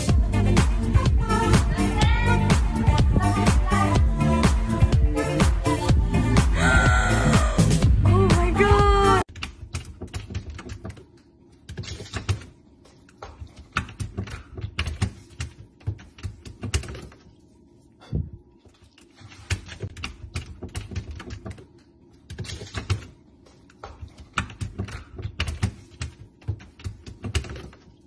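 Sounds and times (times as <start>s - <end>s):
puppy claws clicking and scratching: 9.3s - 11.0s, 11.6s - 12.5s, 13.1s - 17.2s, 18.9s - 28.0s.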